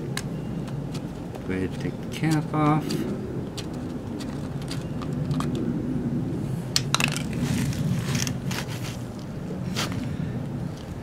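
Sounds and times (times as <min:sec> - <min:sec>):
steady low hum: 0:00.0 - 0:11.0
cap clicks and scrapes: 0:00.1 - 0:05.6.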